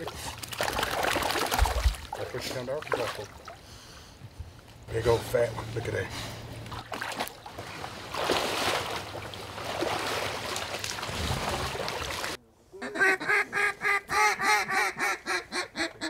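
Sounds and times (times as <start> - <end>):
water sloshing and splashing: 0.0 - 12.4.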